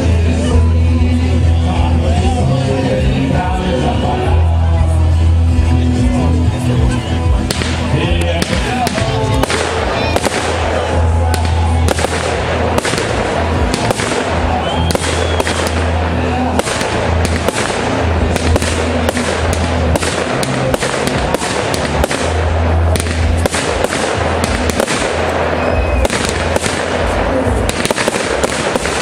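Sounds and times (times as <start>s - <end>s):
fireworks exploding: 7.4s - 29.0s.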